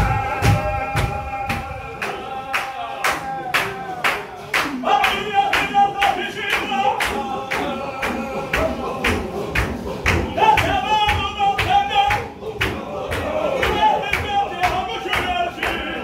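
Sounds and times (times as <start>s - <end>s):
men chanting together: 0.0s - 16.0s
hand claps: 0.3s - 16.0s.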